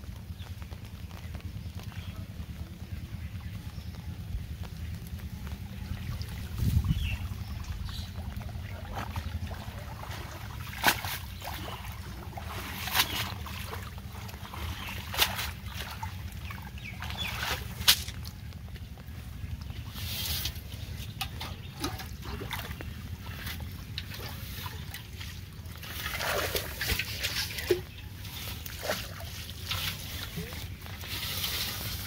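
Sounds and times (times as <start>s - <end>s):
wind rumble on microphone: 0.0s - 25.1s
water splashing and dripping: 0.0s - 32.0s.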